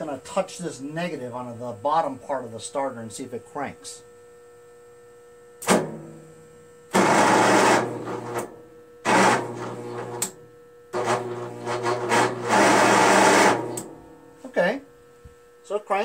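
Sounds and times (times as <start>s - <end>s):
sharp electrical snap: 5.6s - 6.2s, 10.0s - 11.2s, 13.3s - 14.2s
electric starter cranking engine: 6.9s - 10.4s, 11.0s - 14.0s.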